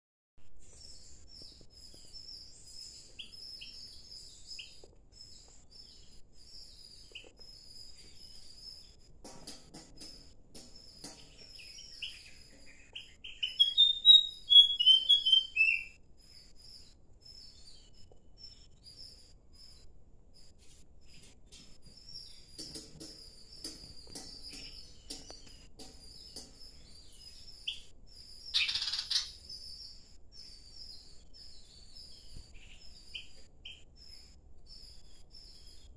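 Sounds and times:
birds chirping: 0.7s - 35.9s.

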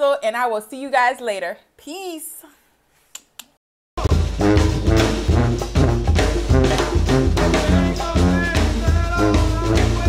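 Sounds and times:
jazzy music with brass and drums: 4.0s - 10.0s.

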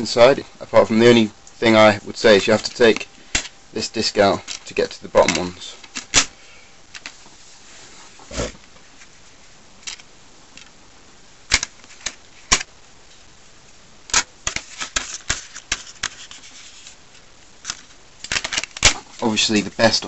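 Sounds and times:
plastic disc case clicks: 5.2s - 6.3s, 11.5s - 12.7s, 17.6s - 19.0s.

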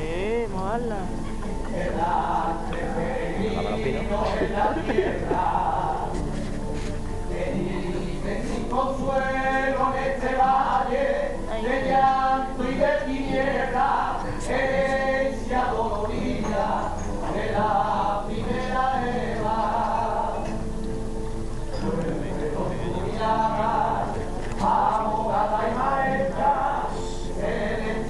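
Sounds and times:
person singing long held notes: 1.5s - 6.2s.

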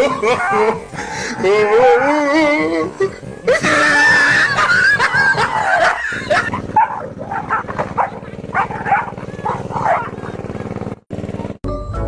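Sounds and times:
dog barking and yelping: 0.0s - 2.3s, 4.3s - 10.5s.

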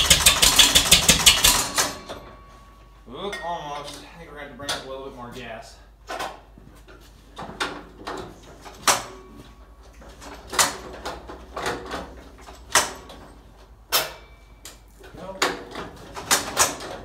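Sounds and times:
hand crank metallic clank: 0.0s - 2.5s.

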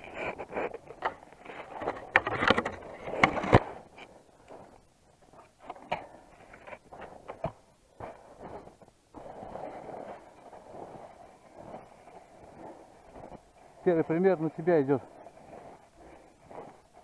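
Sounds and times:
skis crunching through snow: 0.0s - 2.1s, 2.8s - 17.0s.

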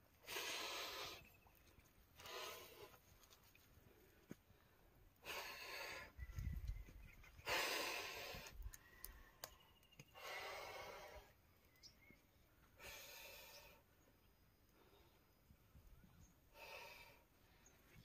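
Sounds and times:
man breathing heavily: 0.2s - 1.2s, 2.2s - 3.0s, 3.9s - 6.2s, 7.4s - 9.4s, 10.1s - 11.4s, 12.7s - 13.9s, 16.5s - 17.7s.

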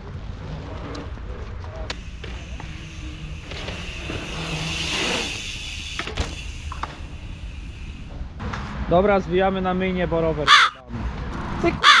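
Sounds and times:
bike tyres hissing on concrete: 1.9s - 9.3s.

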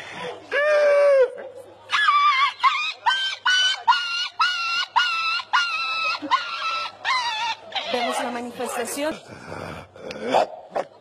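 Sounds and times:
man imitating dog yelps: 1.9s - 8.3s.

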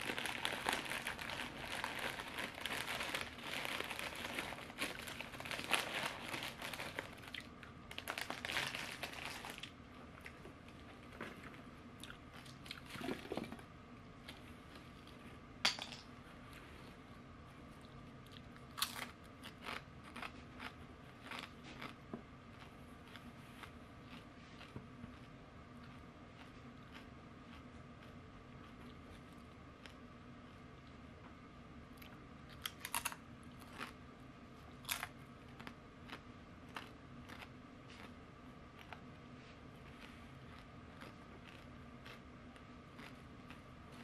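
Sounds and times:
chip bag crinkling: 0.0s - 11.6s, 32.6s - 34.0s, 34.8s - 38.1s
crunchy chewing: 17.6s - 31.0s, 32.0s - 44.0s.

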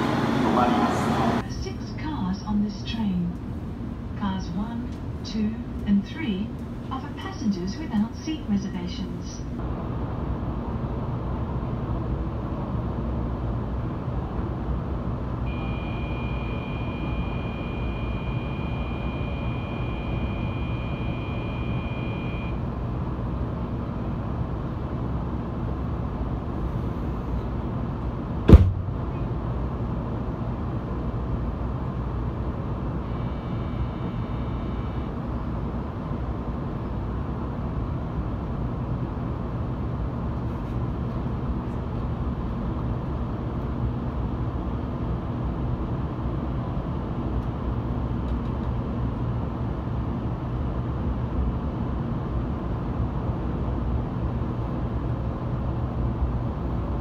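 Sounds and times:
steady low train hum: 0.0s - 57.0s
high electronic tone: 15.5s - 22.6s
sharp knock: 28.5s - 29.0s.

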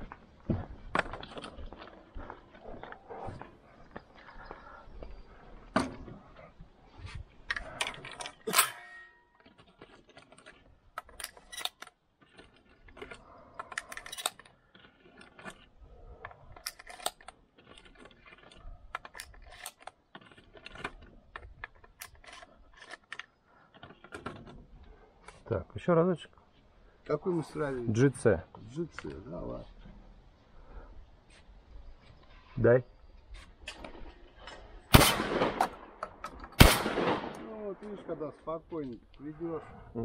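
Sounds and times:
shotgun cartridges clicking and rattling: 7.4s - 25.4s, 33.6s - 38.4s.

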